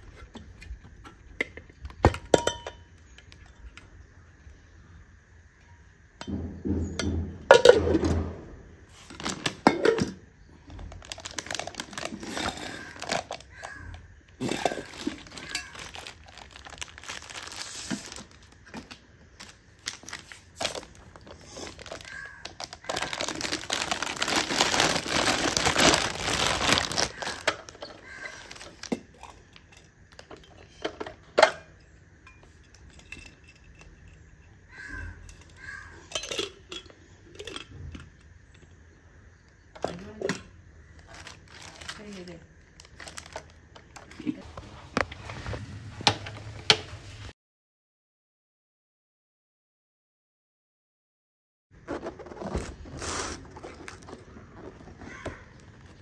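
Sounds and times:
steel jars and lids clinking: 0:02.2 - 0:03.6, 0:06.2 - 0:08.2, 0:09.1 - 0:10.3, 0:11.3 - 0:18.3, 0:21.4 - 0:38.2
plastic wrapping crinkling: 0:08.9 - 0:09.8, 0:10.8 - 0:29.2, 0:41.0 - 0:44.4, 0:52.0 - 0:56.0.

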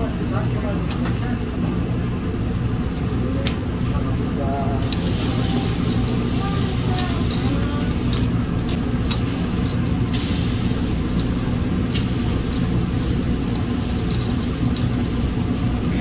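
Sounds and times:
low mechanical rumble: 0:00.0 - 0:16.0
metal tongs clicking on grill grate: 0:04.8 - 0:15.1.

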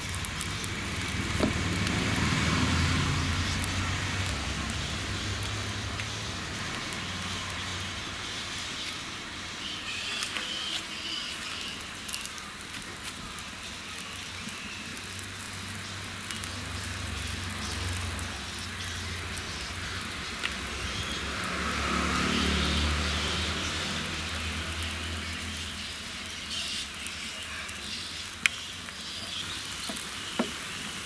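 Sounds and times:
oil sizzling on griddle: 0:00.0 - 0:31.0
sharp crackles: 0:00.0 - 0:31.0.

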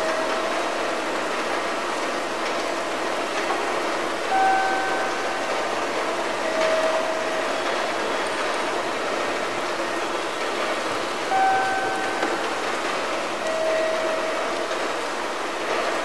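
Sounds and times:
steady noisy hum: 0:00.0 - 0:16.0
short steady tones: 0:11.3 - 0:12.6.

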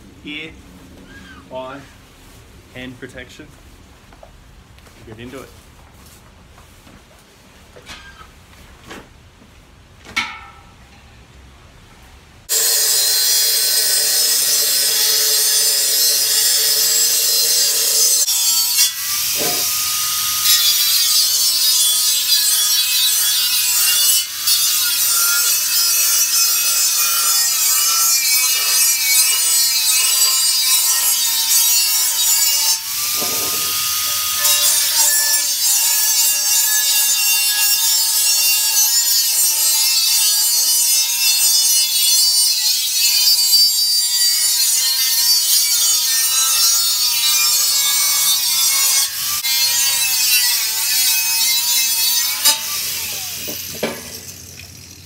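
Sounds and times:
angle grinder cutting metal: 0:12.5 - 0:55.0.

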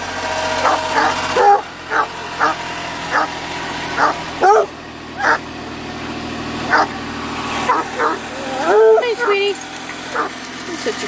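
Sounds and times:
puppies yipping: 0:00.6 - 0:05.4, 0:06.7 - 0:06.9, 0:07.6 - 0:10.4.

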